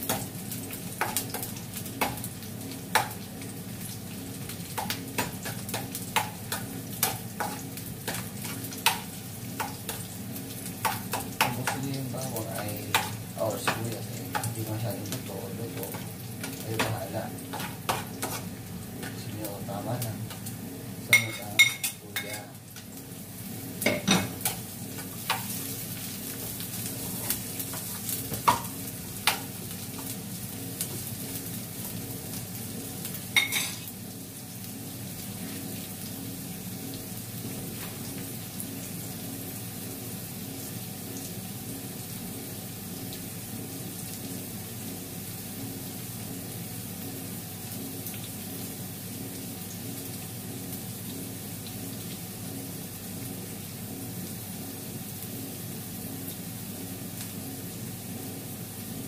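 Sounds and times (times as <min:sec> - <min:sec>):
food sizzling in a frying pan: 0:00.0 - 0:59.0
spoon clinking on pan: 0:33.4 - 0:33.8.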